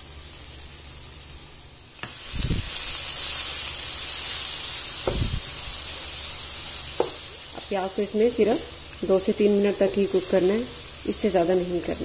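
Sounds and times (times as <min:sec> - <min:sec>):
onion sizzling in hot oil: 0:00.0 - 0:12.0
soft thumps: 0:05.1 - 0:05.4.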